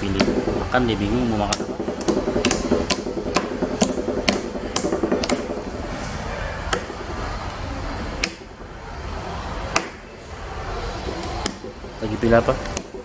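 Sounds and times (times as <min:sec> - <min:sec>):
hands slapping a tabletop: 0:01.5 - 0:05.8.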